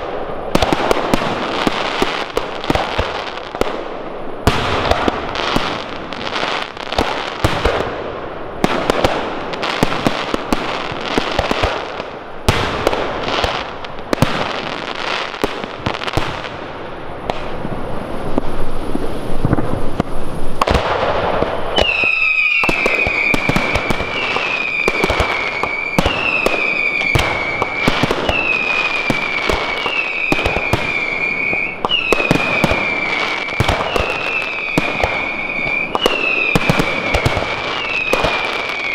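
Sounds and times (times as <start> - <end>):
fireworks bangs: 0.0 - 38.9
falling firework whistles: 18.3 - 38.9.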